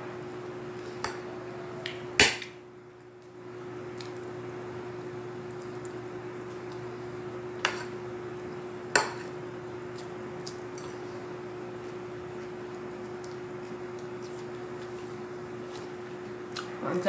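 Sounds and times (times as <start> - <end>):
steady low hum: 0.0 - 17.0
eating sounds: 11.8 - 16.8.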